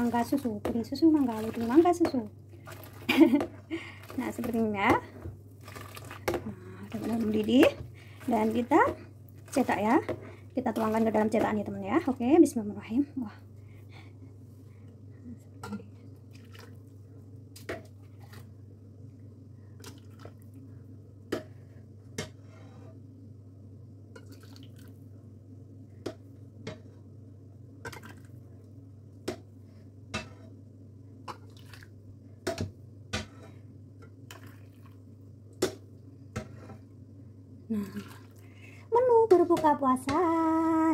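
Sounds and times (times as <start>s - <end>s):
liquid pouring and dripping: 5.6s - 7.6s, 16.2s - 16.9s, 24.2s - 25.0s, 31.3s - 32.0s.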